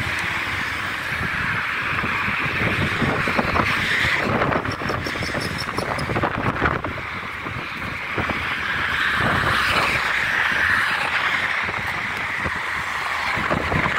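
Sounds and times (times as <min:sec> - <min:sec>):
road traffic passing: 0:00.0 - 0:13.9
car passing by: 0:07.4 - 0:13.9.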